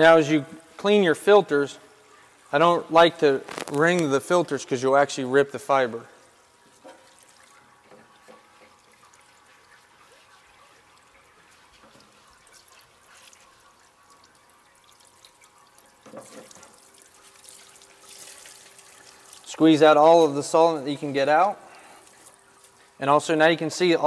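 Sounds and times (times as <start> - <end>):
solvent trickling into tank: 1.9 - 20.0.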